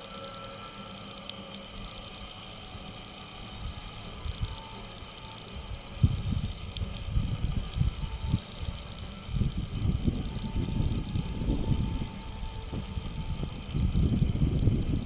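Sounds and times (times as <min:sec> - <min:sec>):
locomotive whistle: 0:00.0 - 0:00.9.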